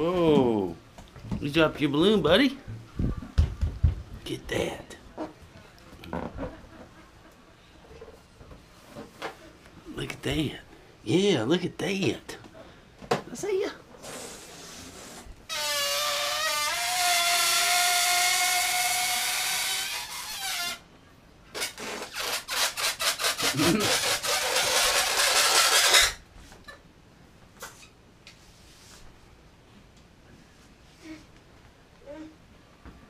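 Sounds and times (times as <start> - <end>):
balloon squealing air out: 14.0 - 20.8, 21.6 - 26.2
fluttering rasp of escaping air: 21.6 - 26.2.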